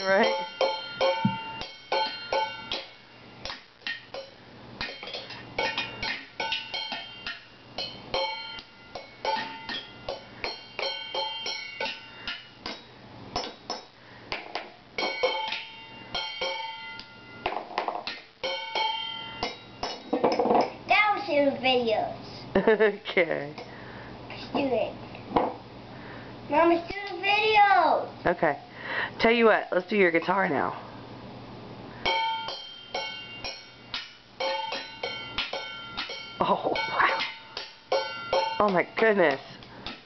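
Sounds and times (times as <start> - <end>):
drumsticks beating metal pots: 0.0 - 20.9, 32.0 - 40.0.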